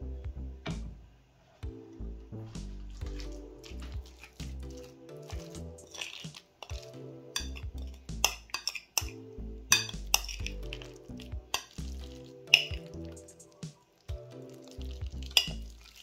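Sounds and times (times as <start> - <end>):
background music with held notes: 0.0 - 16.0
utensil clinking against bowl: 8.2 - 9.2.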